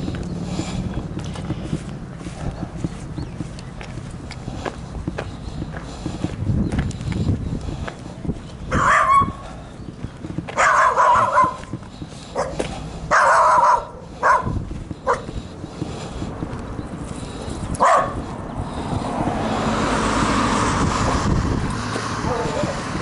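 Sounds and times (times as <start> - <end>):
vehicle road noise approaching: 0.0 - 23.0
dog barking: 8.7 - 9.4, 10.6 - 11.7, 12.3 - 15.3, 17.8 - 18.2, 22.2 - 22.8.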